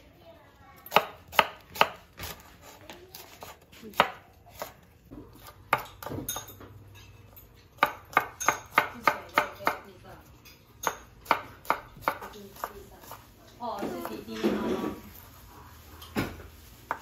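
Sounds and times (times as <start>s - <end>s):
knife chopping on wooden board: 0.9s - 6.5s, 7.8s - 9.9s, 10.8s - 13.2s.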